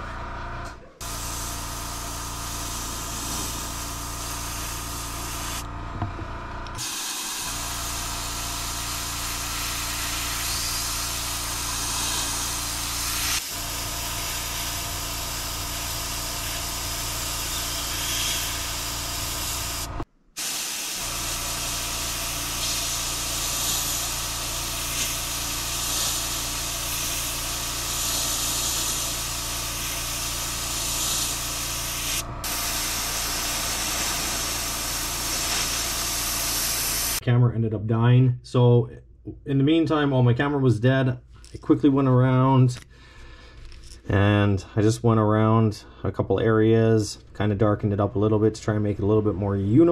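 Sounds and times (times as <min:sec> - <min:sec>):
airbrush spraying hiss: 0:01.0 - 0:05.6, 0:06.8 - 0:37.2
steady low hum: 0:21.0 - 0:49.9.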